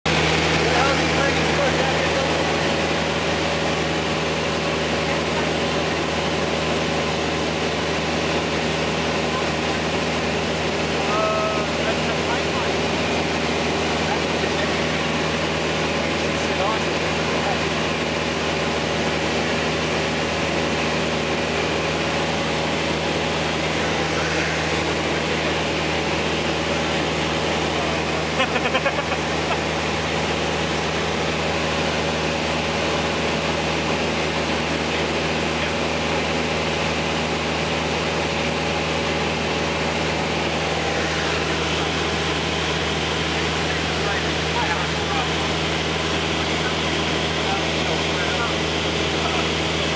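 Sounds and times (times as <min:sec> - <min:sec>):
plane engine and propeller droning: 0:00.1 - 0:49.9
rushing air noise: 0:21.8 - 0:28.2, 0:39.3 - 0:43.5.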